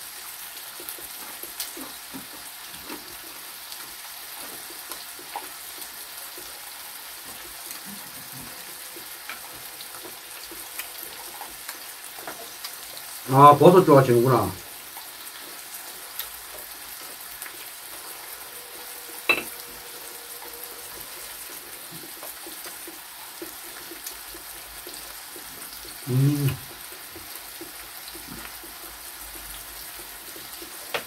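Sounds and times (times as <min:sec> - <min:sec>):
pork sizzling on grill pan: 0:00.0 - 0:31.0.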